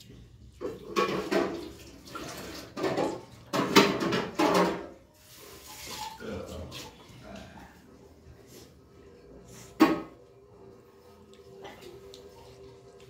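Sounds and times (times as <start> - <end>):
wet eating by hand: 5.2 - 13.0.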